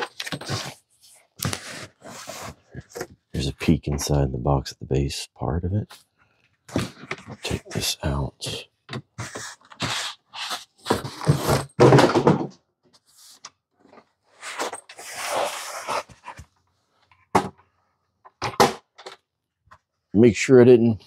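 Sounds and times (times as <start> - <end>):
cardboard scraping and bumping: 9.2 - 12.0.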